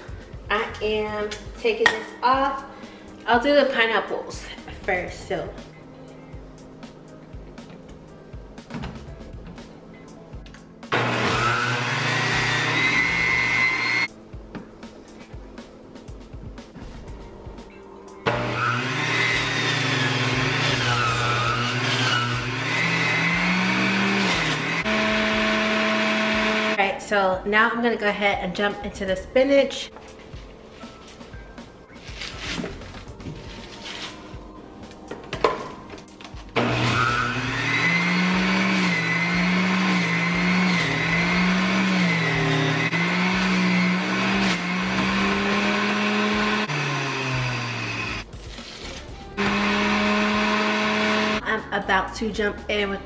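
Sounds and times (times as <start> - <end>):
juicer motor humming: 10.9 - 14.1, 18.2 - 26.8, 36.6 - 48.2, 49.4 - 51.4.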